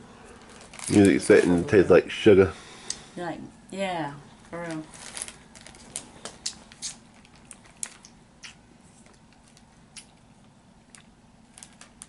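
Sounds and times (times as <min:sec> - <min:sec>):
plastic bag crinkling: 0:00.3 - 0:01.9, 0:04.6 - 0:08.2, 0:10.9 - 0:12.0
soft chewing: 0:05.7 - 0:12.0.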